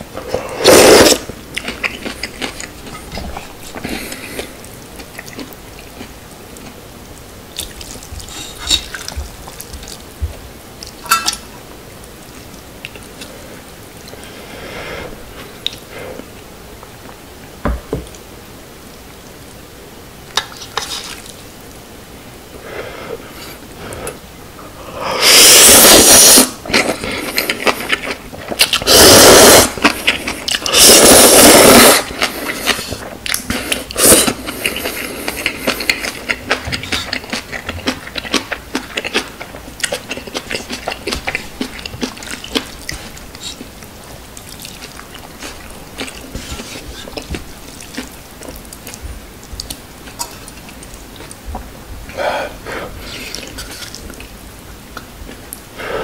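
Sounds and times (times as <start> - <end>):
noodles slurped loudly: 0.5 - 1.3, 25.2 - 33.0
wet chewing: 7.5 - 10.1, 31.8 - 52.2.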